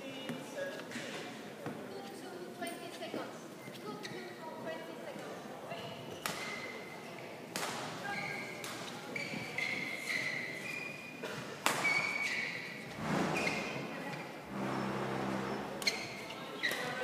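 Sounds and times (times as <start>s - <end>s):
shoes squeaking on court: 8.1s - 14.3s.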